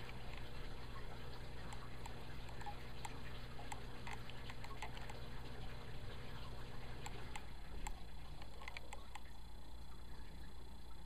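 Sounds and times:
faint clicks and ticks: 0:00.0 - 0:11.0
steady low hum: 0:00.0 - 0:11.0.

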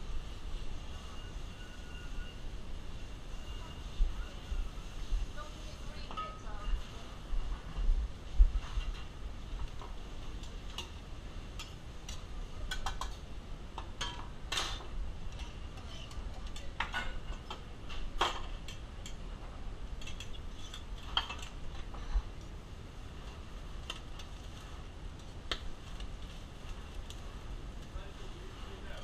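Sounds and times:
utensils and cookware clinking: 0:10.4 - 0:13.2, 0:13.8 - 0:19.2, 0:20.0 - 0:22.5.

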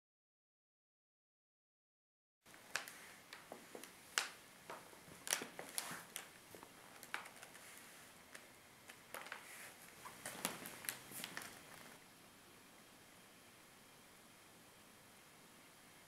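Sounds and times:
faint hiss: 0:02.5 - 0:16.0
small sharp clicks and snaps: 0:02.6 - 0:07.6, 0:08.2 - 0:09.4.

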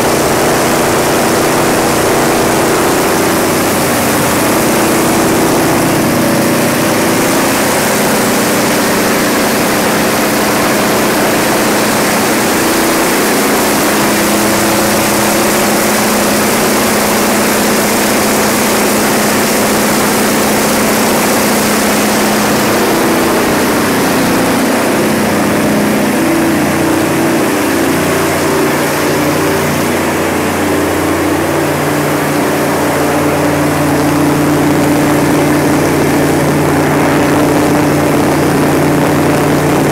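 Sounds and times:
diesel generator engine running: 0:00.0 - 0:39.9.

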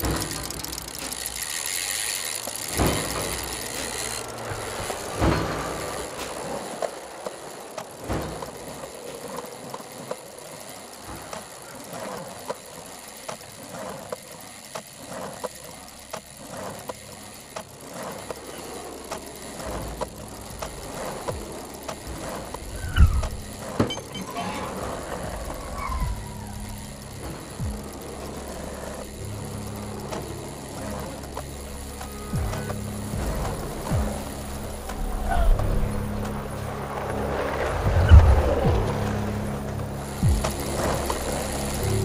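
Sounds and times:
clicking and ratcheting gears: 0:00.0 - 0:42.0.

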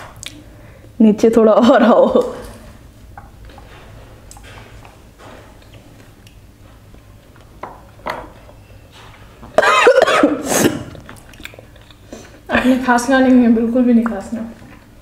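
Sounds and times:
person coughing loudly: 0:09.6 - 0:10.9.

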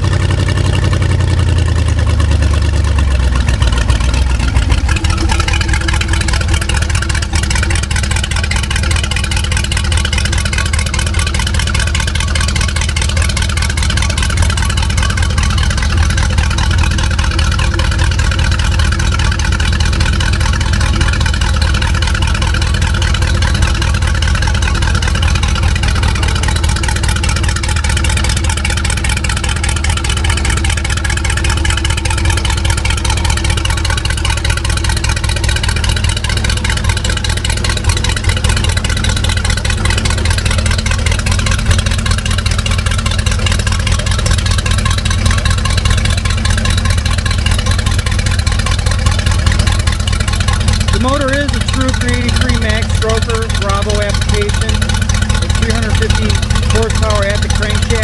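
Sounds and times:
boat engine running steadily: 0:00.0 - 0:58.0.

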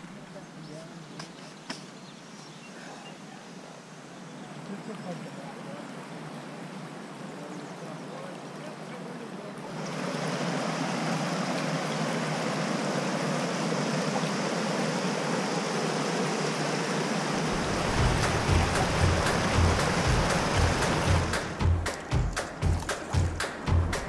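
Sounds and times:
rushing river rapids: 0:04.5 - 0:24.0
music with pulsing beat: 0:17.6 - 0:24.0.

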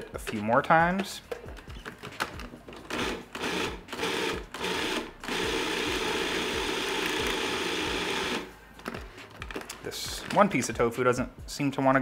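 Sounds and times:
food processor chopping: 0:02.9 - 0:08.5.

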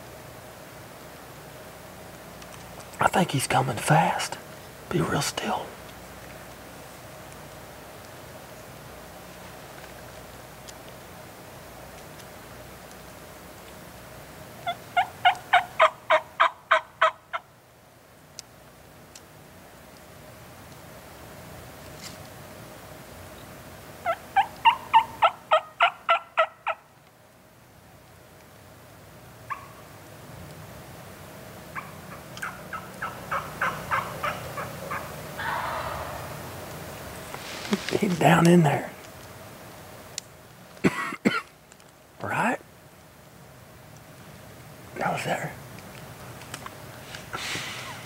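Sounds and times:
turkey yelps: 0:14.6 - 0:17.5, 0:24.0 - 0:26.9, 0:29.5 - 0:29.9, 0:31.7 - 0:36.6
brief rustle: 0:37.3 - 0:38.2.

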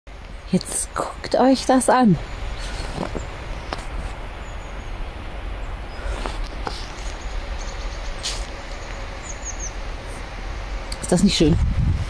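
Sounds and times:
wind buffeting microphone: 0:00.4 - 0:12.0
soft crunches in snow: 0:02.5 - 0:04.2, 0:05.9 - 0:07.4, 0:08.2 - 0:09.0.

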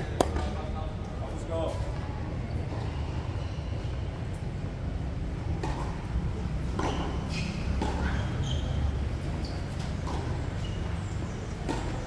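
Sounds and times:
tennis ball knocks: 0:11.6 - 0:12.0.

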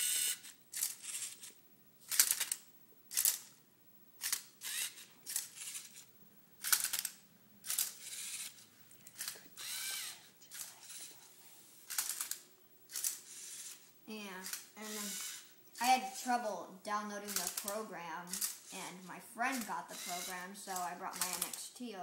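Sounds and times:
robot servo motors whirring: 0:00.0 - 0:03.4, 0:04.2 - 0:08.6, 0:09.2 - 0:11.0, 0:11.9 - 0:15.5, 0:19.5 - 0:20.4.

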